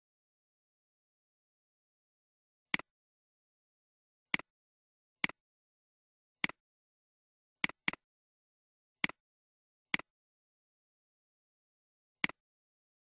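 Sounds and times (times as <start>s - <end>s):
computer mouse clicks: 7.6s - 8.0s, 12.2s - 12.4s.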